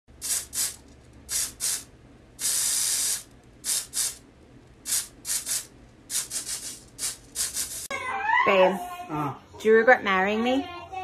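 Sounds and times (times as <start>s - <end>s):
aerosol spray can hissing: 0.2s - 4.2s, 4.9s - 7.9s.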